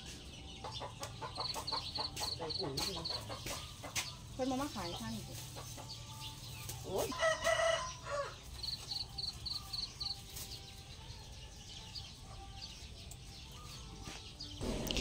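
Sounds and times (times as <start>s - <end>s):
chickens clucking: 0.0s - 10.5s.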